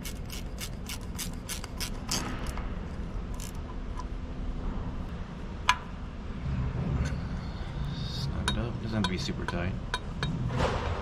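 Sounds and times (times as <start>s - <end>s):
ratcheting wrench clicking: 0.0s - 2.6s, 3.3s - 4.1s.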